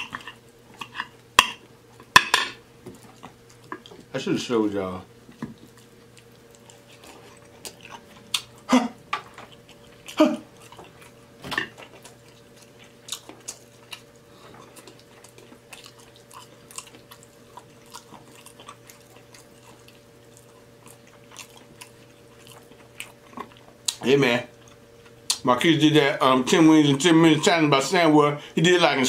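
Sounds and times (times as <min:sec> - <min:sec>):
faint steady hum: 0:00.0 - 0:29.0
chewing and wet mouth smacks: 0:05.5 - 0:25.4.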